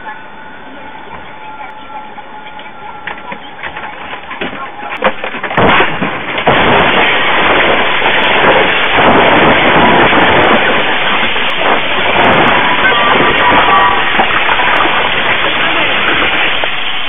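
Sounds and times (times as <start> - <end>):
wreck sliding din: 3.0 - 17.0
heavy crash impacts: 4.2 - 17.0
debris and glass flying: 4.4 - 17.0.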